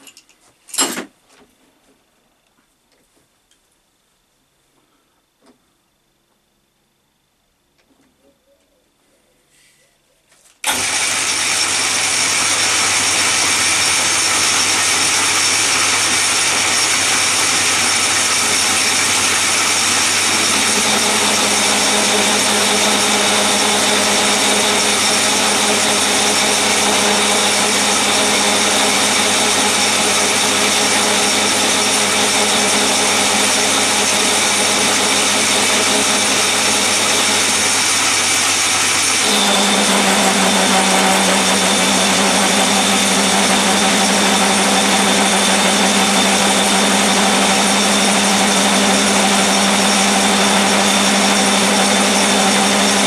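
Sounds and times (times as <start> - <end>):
metal lathe whining: 10.6 - 53.0.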